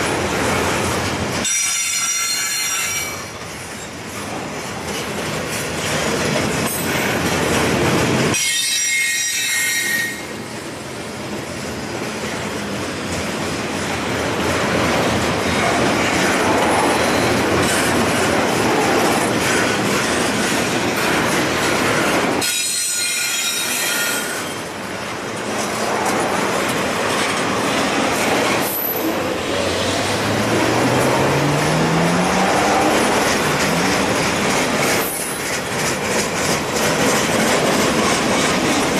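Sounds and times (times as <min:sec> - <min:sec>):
train wheels rumbling on rails: 0:00.0 - 0:38.9
high wheel squeal: 0:01.4 - 0:03.9, 0:08.4 - 0:10.4, 0:22.4 - 0:24.7
clicking over rail joints: 0:32.4 - 0:38.9.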